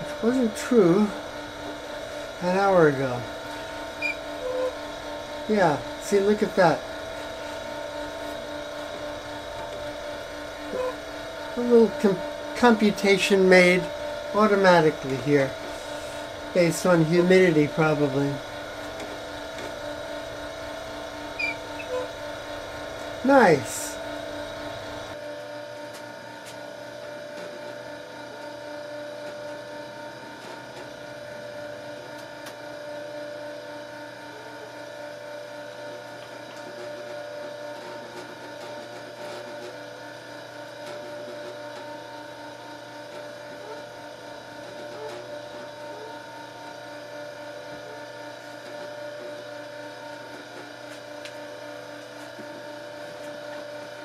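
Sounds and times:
machine humming: 0:00.0 - 0:54.0.

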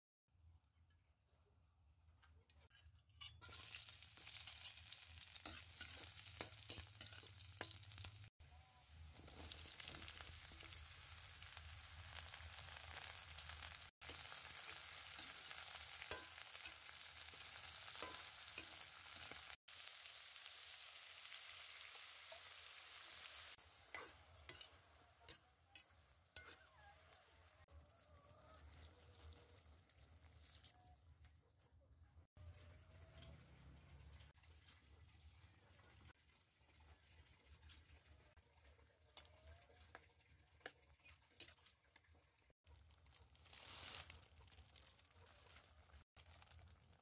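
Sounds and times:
food sizzling in a pan: 0:03.4 - 0:27.7, 0:43.4 - 0:46.4.

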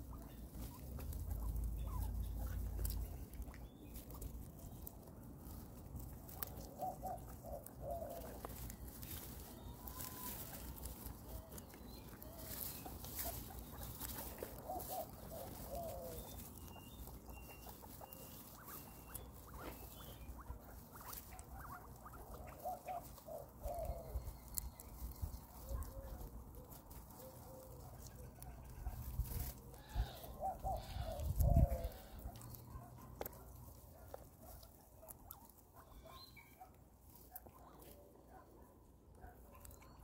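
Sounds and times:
guinea pig squeaky calls: 0:00.0 - 0:38.5, 0:39.2 - 0:40.0
guinea pigs chewing: 0:00.0 - 0:40.0.

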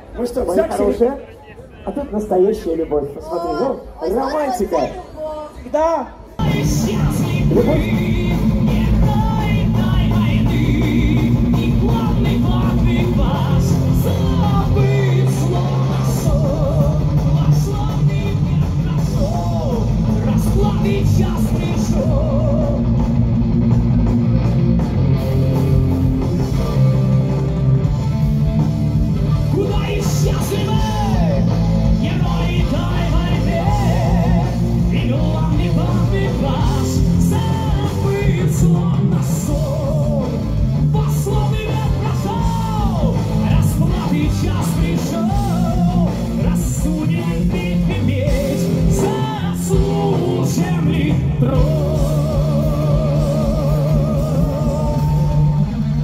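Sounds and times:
bass guitar: 0:06.4 - 0:56.0
drums with cymbals: 0:06.4 - 0:56.0
electric guitars: 0:06.4 - 0:56.0
rock band playing live: 0:06.4 - 0:56.0
person singing sustained vocal: 0:29.5 - 0:55.8.

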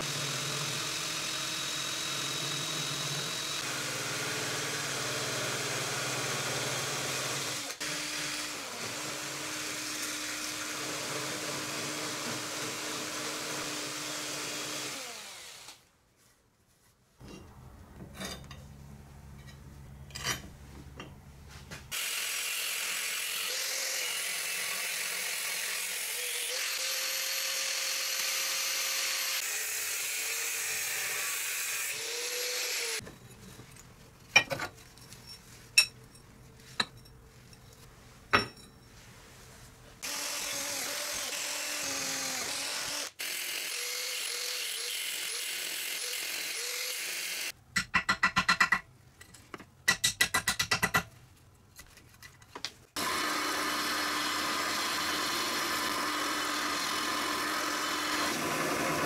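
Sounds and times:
electric power tool on metal: 0:21.9 - 0:33.0, 0:40.0 - 0:47.6, 0:53.0 - 0:59.0.

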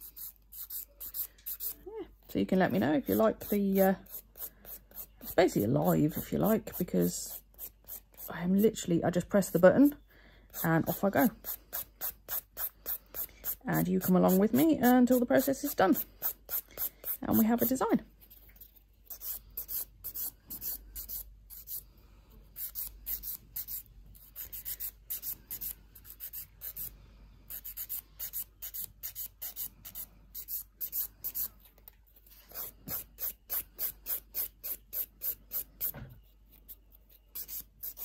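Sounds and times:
nail file rasping on fingernails: 0:00.0 - 0:01.8, 0:02.7 - 0:08.8, 0:10.5 - 0:17.9, 0:18.6 - 0:21.8, 0:22.5 - 0:26.9, 0:27.5 - 0:31.7, 0:32.3 - 0:38.0.

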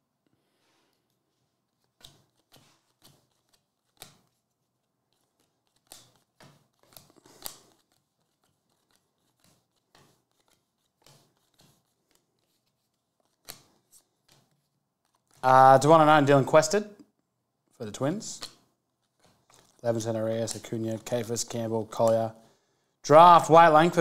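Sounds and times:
cards snapping and sliding: 0:01.8 - 0:04.4, 0:05.1 - 0:15.4, 0:18.4 - 0:19.8.

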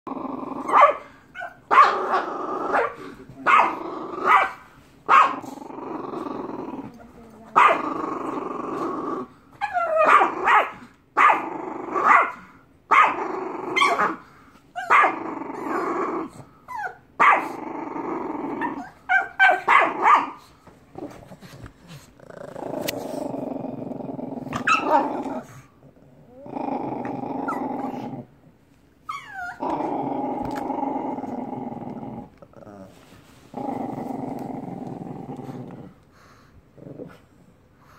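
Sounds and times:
puppy play-growling: 0:00.1 - 0:37.9
puppy barking sharply: 0:00.7 - 0:01.0.

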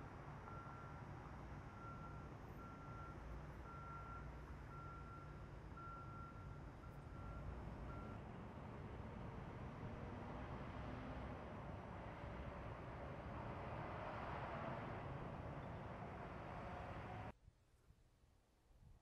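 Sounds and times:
low rumble of traffic and engine: 0:00.0 - 0:17.4
vehicle reversing alarm beeping: 0:00.5 - 0:08.2.

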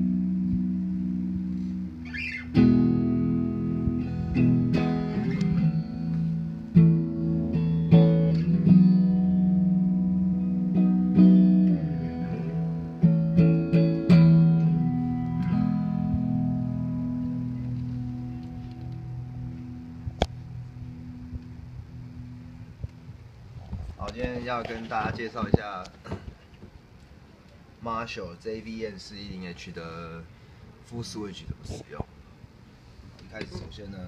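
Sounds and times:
electric guitar lead line: 0:00.0 - 0:24.4.

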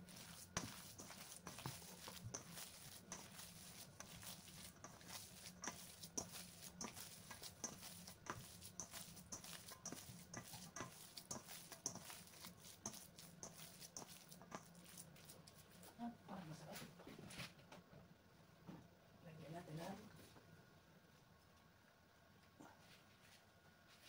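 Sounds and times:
hand kneading meat mixture: 0:00.0 - 0:17.0.

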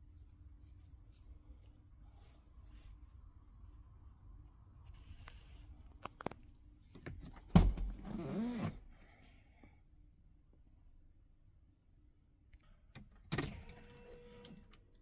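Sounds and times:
seatback creaking: 0:07.8 - 0:08.8.

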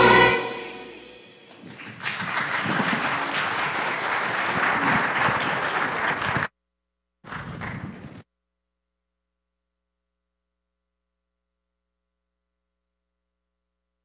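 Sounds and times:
children's choir singing: 0:00.0 - 0:01.3
audience applauding: 0:01.5 - 0:06.5, 0:07.3 - 0:08.2.

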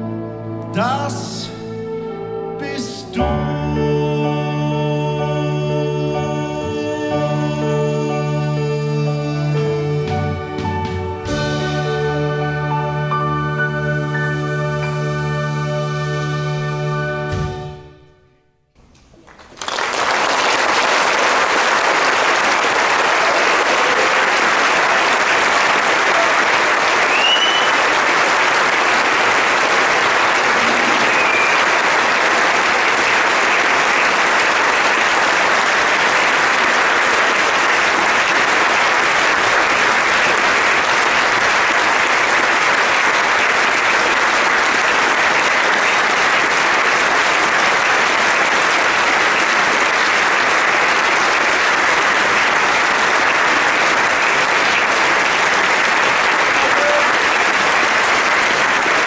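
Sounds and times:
audience applauding: 0:19.1 - 0:59.0.

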